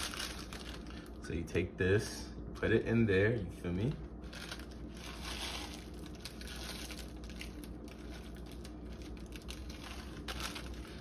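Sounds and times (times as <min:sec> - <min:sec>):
plastic packet crinkling: 0:00.0 - 0:01.2, 0:03.8 - 0:11.0.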